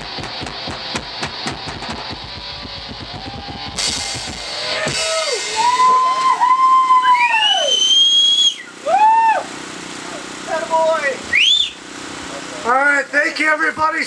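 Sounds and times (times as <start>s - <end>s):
drum hits: 0.0s - 6.0s
cymbal crash: 0.7s - 6.1s
high sliding whistle-like tones: 4.8s - 9.2s.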